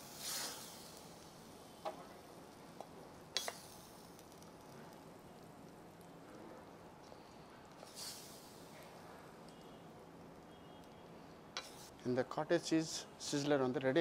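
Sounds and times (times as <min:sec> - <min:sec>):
sauce sizzling on hot plate: 0:00.0 - 0:09.6.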